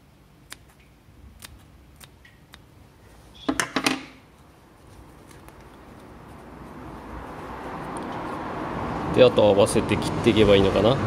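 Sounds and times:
scissors snipping: 1.4s - 2.6s.

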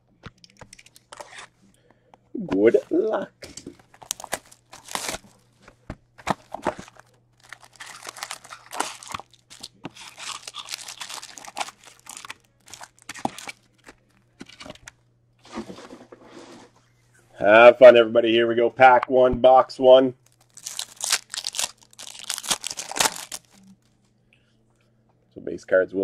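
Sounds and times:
wrapped packs crinkling: 3.8s - 5.4s, 6.3s - 14.9s, 20.2s - 23.8s.

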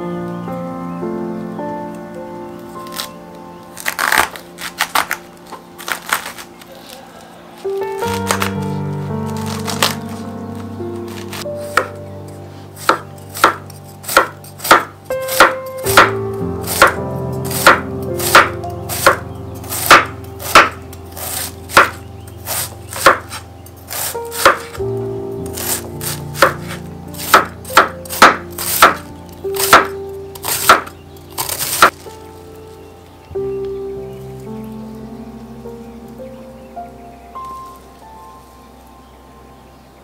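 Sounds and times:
knife chopping cabbage: 3.8s - 5.2s, 5.8s - 7.0s, 8.1s - 8.5s, 9.3s - 10.1s, 11.1s - 12.0s, 12.8s - 24.8s, 25.5s - 32.0s.

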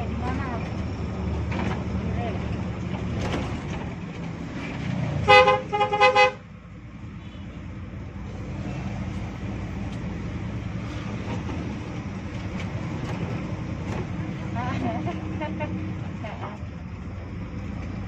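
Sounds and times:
bus engine running: 0.0s - 18.0s
road noise: 0.0s - 18.0s
two-tone horn blast: 5.2s - 6.4s.

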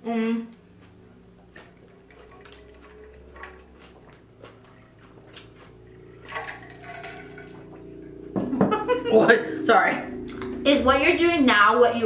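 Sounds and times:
chewing: 0.7s - 7.9s.

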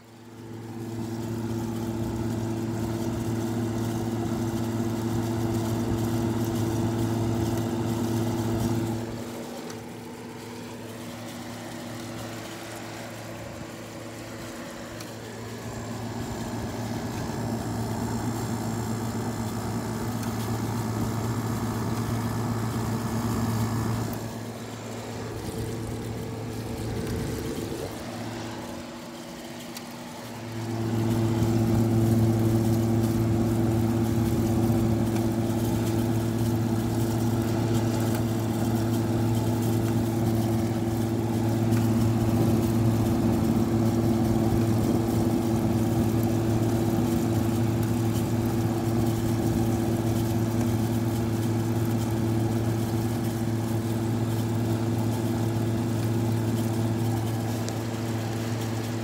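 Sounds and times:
air conditioner humming: 0.0s - 59.0s.

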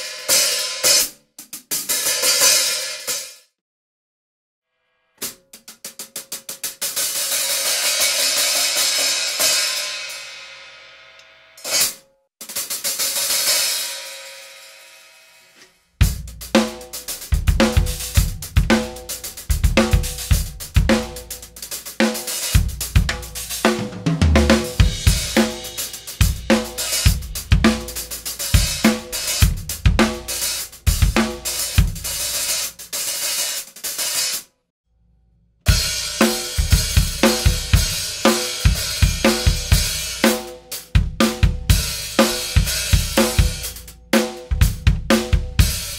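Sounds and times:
drum kit groove: 0.0s - 3.5s, 5.2s - 10.5s, 11.6s - 14.9s, 15.6s - 34.5s, 35.7s - 45.9s
hi-hat struck rapidly: 16.0s - 34.5s, 35.8s - 45.9s.

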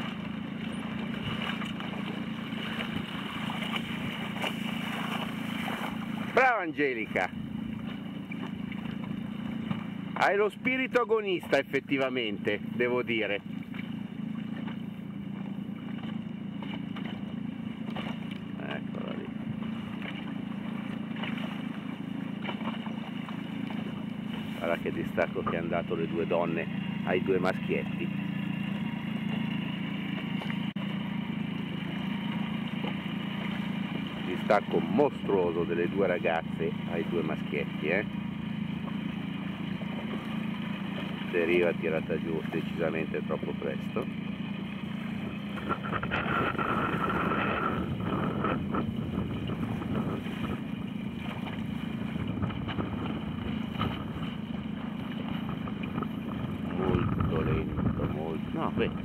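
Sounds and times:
boat moving on water: 0.0s - 59.0s
low hum: 0.0s - 59.0s
motorboat engine idling: 0.0s - 59.0s
wind buffeting microphone: 45.0s - 59.0s.

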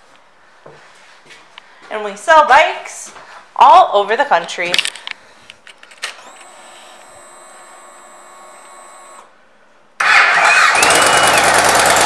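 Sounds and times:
faint electric whine: 5.1s - 9.6s
motorcycle engine starting: 10.0s - 12.0s.

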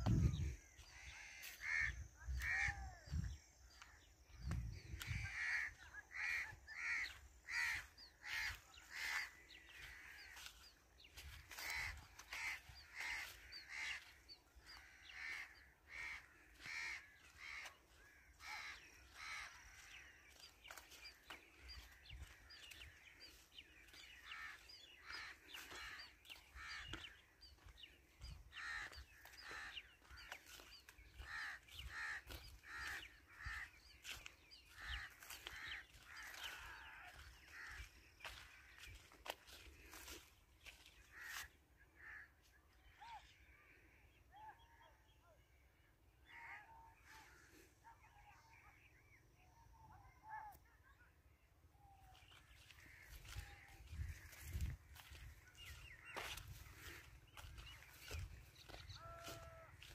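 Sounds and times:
birds calling: 0.0s - 50.7s, 51.4s - 59.9s.

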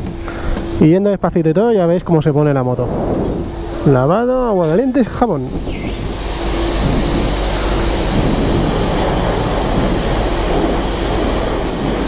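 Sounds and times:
pressure washer jet hissing: 2.6s - 12.0s.

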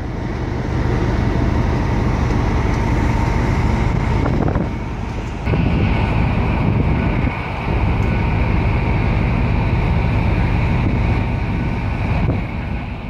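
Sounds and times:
ship low rumble: 0.0s - 13.0s
wind rushing over microphone: 0.0s - 13.0s.

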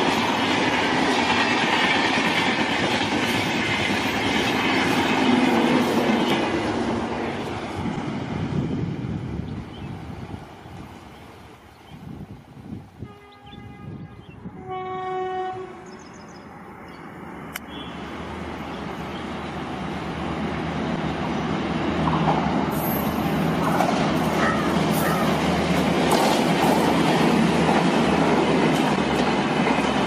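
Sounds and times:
train rumble and wheel clatter: 0.0s - 30.0s
train horn: 13.0s - 15.9s.

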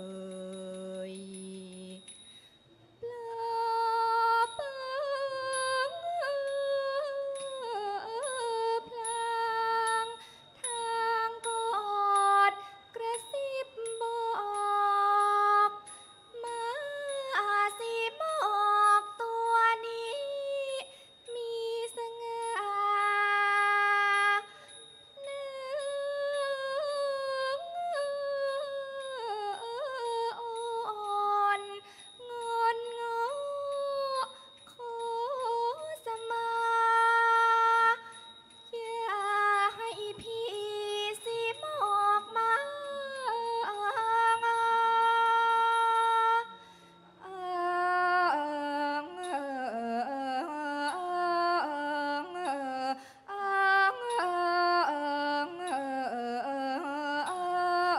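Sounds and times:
woman singing slow vocal line: 0.0s - 2.2s, 38.8s - 57.9s.

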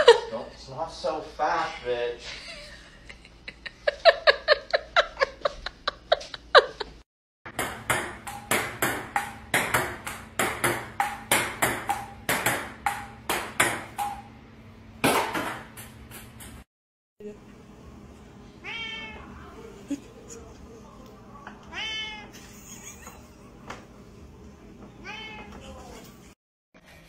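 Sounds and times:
ping-pong ball hits and bounces: 7.5s - 14.4s, 15.0s - 16.6s.

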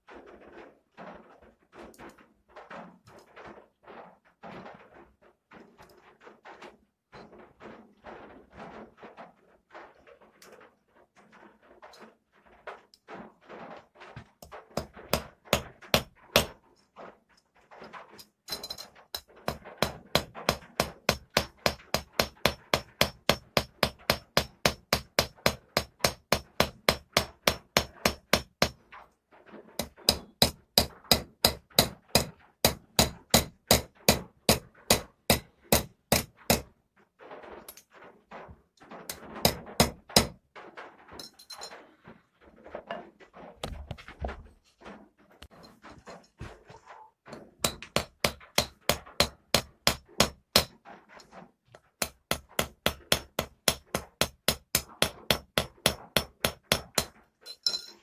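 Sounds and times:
hammer tapping on metal: 14.7s - 16.6s, 18.5s - 28.8s, 29.8s - 36.7s, 39.1s - 40.4s, 47.3s - 50.8s, 52.0s - 58.0s.

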